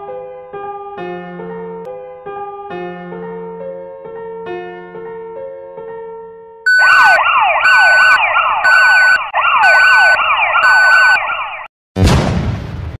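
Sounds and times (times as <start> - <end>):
electronic siren sweeps: 6.7 - 11.7
steady beep: 6.7 - 11.7
loud hit: 12.0 - 13.0.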